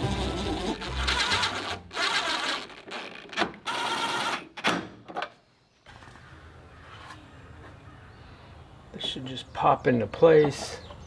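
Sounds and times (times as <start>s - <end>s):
cordless impact driver running: 0.0s - 2.9s, 3.7s - 4.4s.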